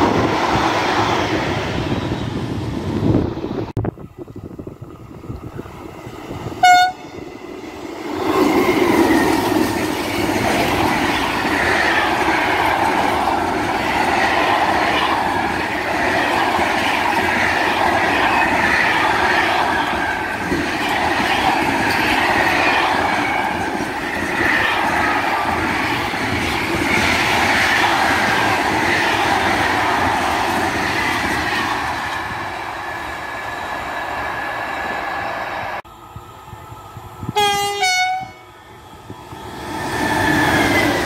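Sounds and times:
freight train rumble: 0.0s - 41.0s
locomotive horn toot: 6.6s - 7.1s, 37.3s - 38.5s.

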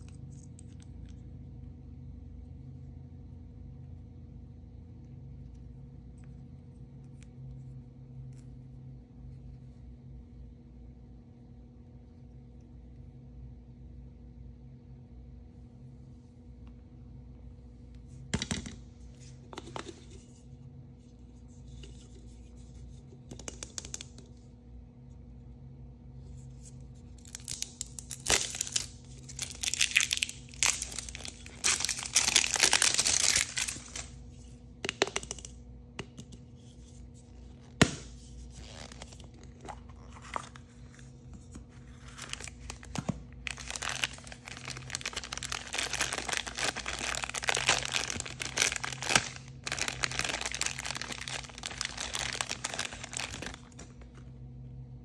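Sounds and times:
plastic packaging tearing and crinkling: 27.2s - 34.2s, 41.9s - 54.2s.

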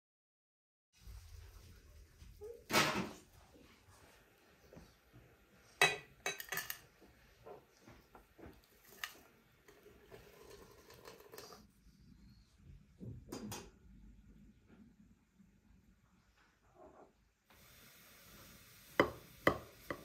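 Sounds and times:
hot water pouring into teapot: 8.5s - 11.6s, 17.5s - 20.0s.

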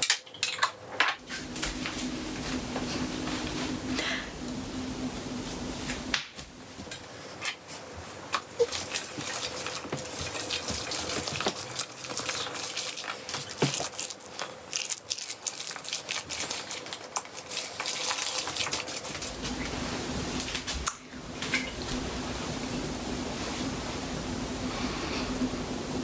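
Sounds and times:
steady low hum: 0.9s - 12.1s, 19.1s - 26.0s.

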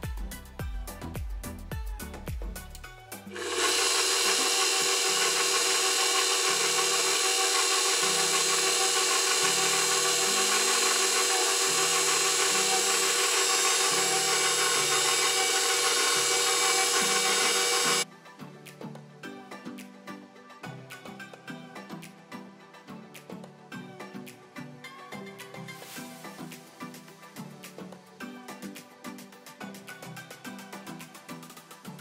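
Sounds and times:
stand mixer humming: 3.4s - 18.0s.

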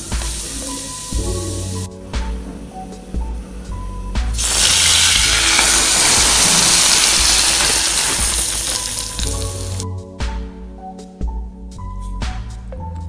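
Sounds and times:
hot oil sizzling on meat: 0.0s - 1.9s, 4.4s - 9.8s.

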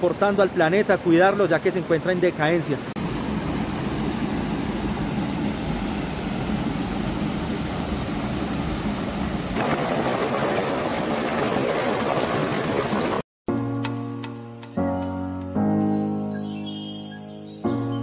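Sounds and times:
creek rushing over rocks: 0.0s - 3.1s, 9.5s - 13.2s
water pouring over small waterfall: 9.6s - 13.2s.

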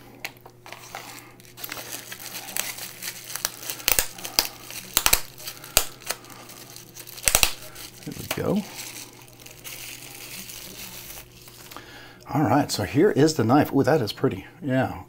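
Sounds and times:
bubble wrap crinkling and crackling: 0.2s - 12.0s.

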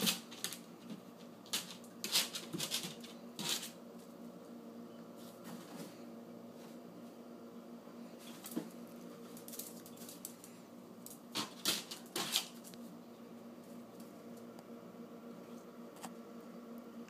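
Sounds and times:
dog claws scrabbling on tiles: 0.0s - 3.7s.

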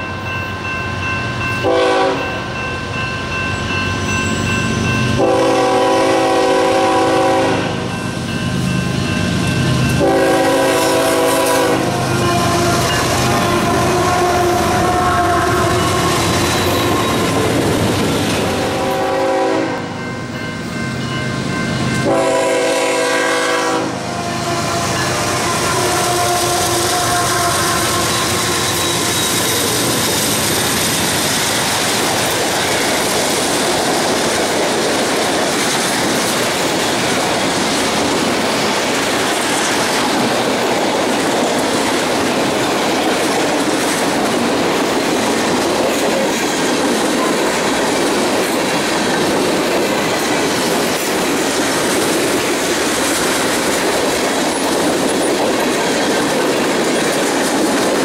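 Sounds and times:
train wheels on rails: 0.0s - 58.0s.

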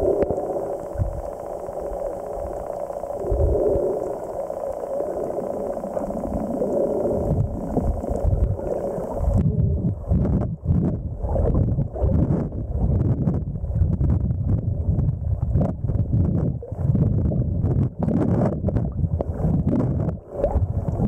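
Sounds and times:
water sloshing and gurgling: 0.0s - 21.0s
muffled underwater whooshes and thuds: 9.2s - 21.0s.

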